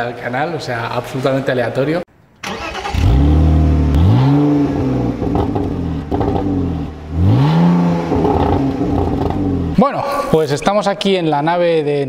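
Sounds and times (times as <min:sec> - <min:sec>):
car engine idling and revving: 0:02.5 - 0:09.8.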